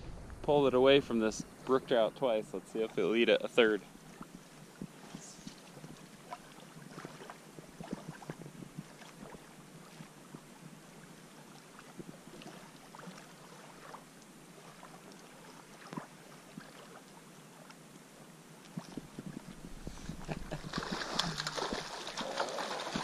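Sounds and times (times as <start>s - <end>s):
small waves lapping: 0.0s - 23.0s
fish splashing at the surface: 20.0s - 23.0s.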